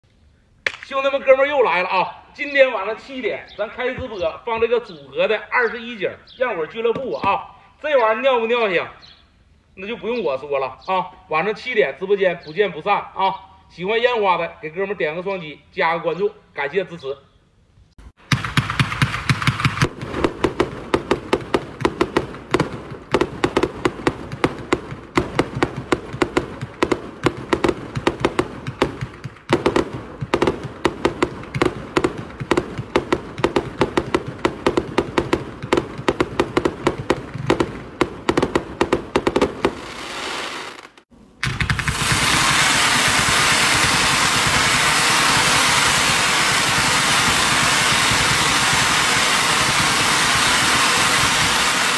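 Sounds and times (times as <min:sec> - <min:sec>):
fireworks launch pops: 0:00.6 - 0:01.0, 0:18.1 - 0:51.9
fireworks loud hiss: 0:18.4 - 0:51.9.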